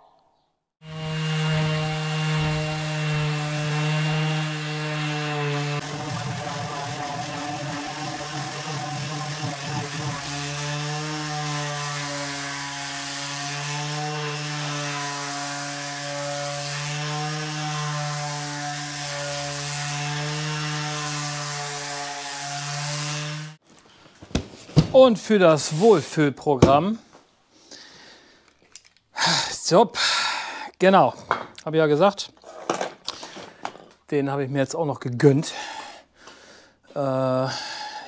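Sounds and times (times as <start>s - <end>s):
orbital sander motor hum: 0.8s - 23.6s
sander grinding on steel: 0.8s - 23.6s.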